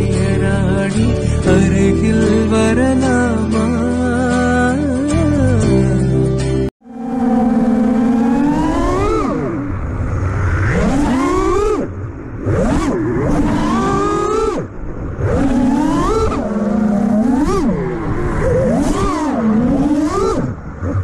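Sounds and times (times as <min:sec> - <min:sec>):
drone motors whining: 0:06.8 - 0:21.0.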